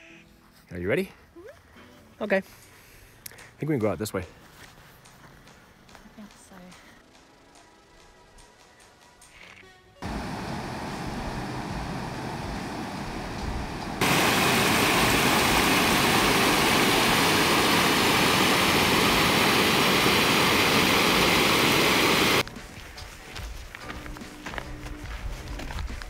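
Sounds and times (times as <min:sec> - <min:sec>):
creek rushing over rocks: 0:10.0 - 0:22.4
small cascade: 0:14.0 - 0:22.4.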